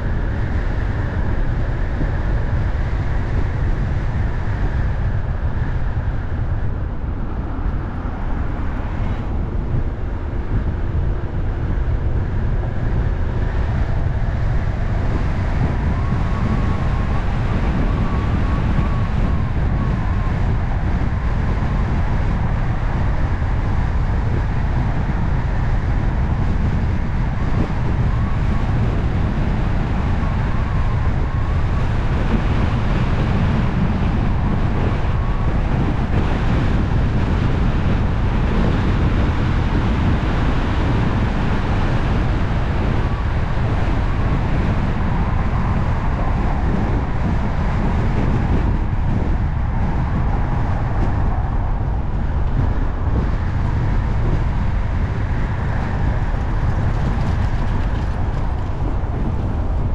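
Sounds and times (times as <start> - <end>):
wind noise: 0.0 - 59.9
tyre and road rumble: 25.9 - 59.9.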